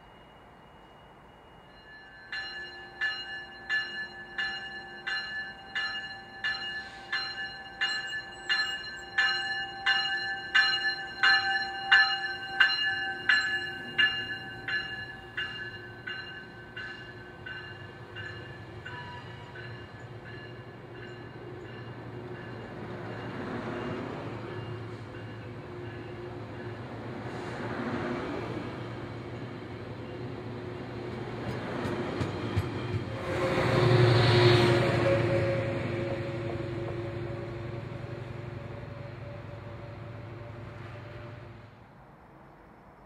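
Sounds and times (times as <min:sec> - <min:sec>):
locomotive bell ringing: 0:00.0 - 0:26.9.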